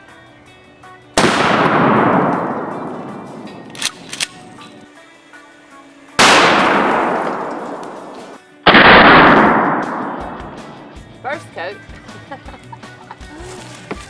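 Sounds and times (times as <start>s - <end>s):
shotgun shots: 1.2s - 4.8s, 6.2s - 10.9s.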